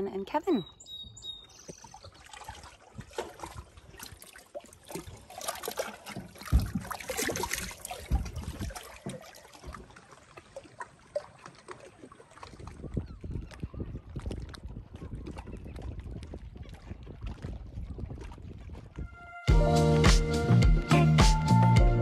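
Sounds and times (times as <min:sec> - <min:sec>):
small waves lapping on rocks: 0:01.7 - 0:13.0.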